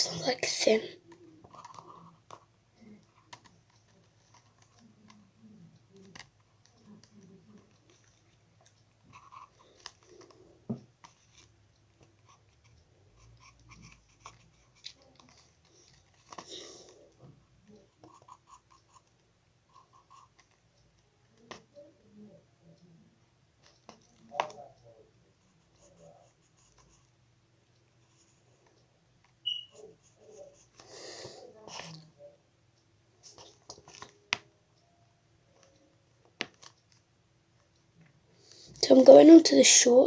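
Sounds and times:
pencil scratching on paper: 12.2 - 16.4, 18.0 - 19.1, 25.6 - 27.1.

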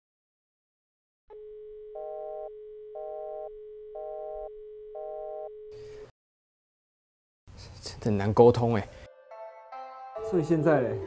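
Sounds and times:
steady telephone line tone: 1.3 - 6.1.

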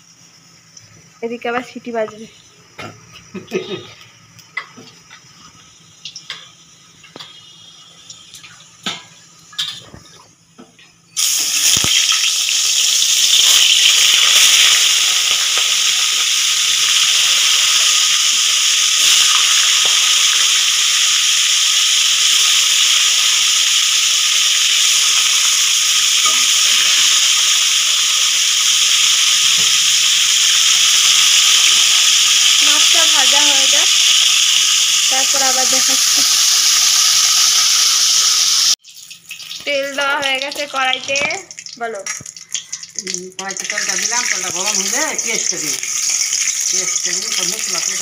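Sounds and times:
fish sizzling in hot oil: 0.0 - 0.8, 3.2 - 10.0, 11.2 - 48.0.

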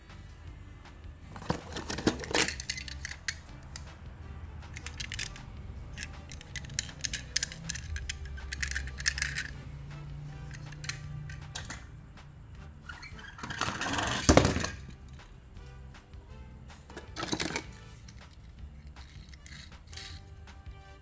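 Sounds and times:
toy cars clicking and clattering: 1.3 - 4.0, 4.6 - 9.6, 10.4 - 11.9, 13.0 - 15.3, 16.9 - 20.3.

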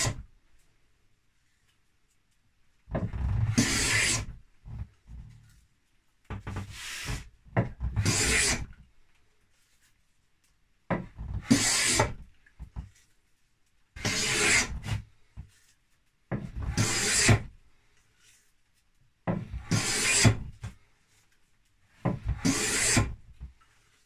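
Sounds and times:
wooden plane rasping on wood: 3.0 - 4.4, 7.9 - 8.7, 11.2 - 12.2, 14.0 - 15.0, 16.3 - 17.5, 19.3 - 20.6, 22.0 - 23.2.

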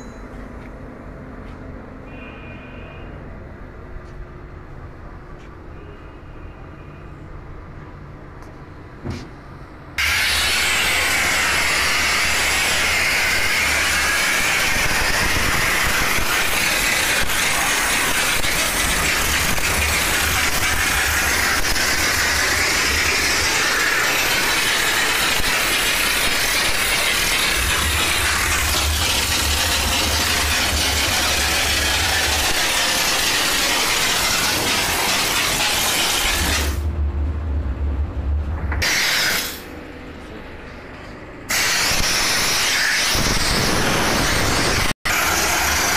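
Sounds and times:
steam hissing from nozzle: 10.0 - 36.8, 38.8 - 39.6, 41.5 - 45.9
low machine hum: 36.7 - 38.8, 39.6 - 41.5.

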